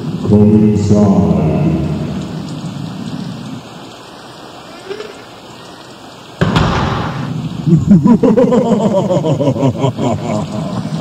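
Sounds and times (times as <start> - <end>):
rain hissing: 0.0 - 11.0
thunder crash: 6.4 - 7.8.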